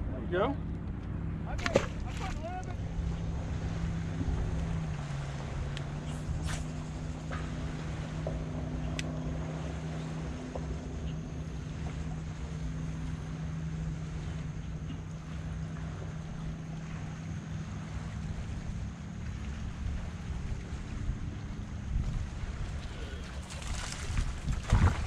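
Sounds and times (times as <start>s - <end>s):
wind buffeting microphone: 1.2s - 25.0s.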